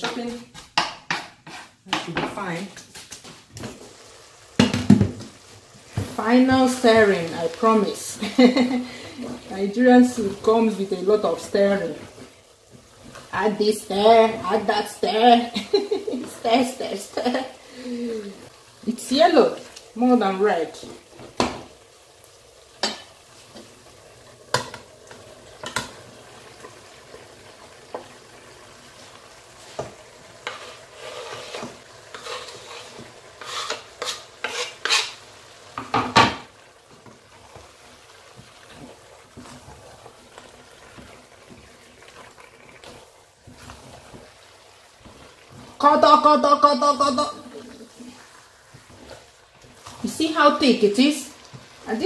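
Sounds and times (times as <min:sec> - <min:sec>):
wooden spatula stirring soup: 0:29.0 - 0:35.9, 0:36.5 - 0:52.0.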